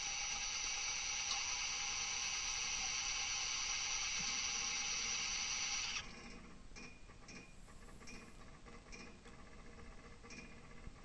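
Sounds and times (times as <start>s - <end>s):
steady hiss: 0.0s - 6.1s
faint mechanical ticks: 5.9s - 11.0s.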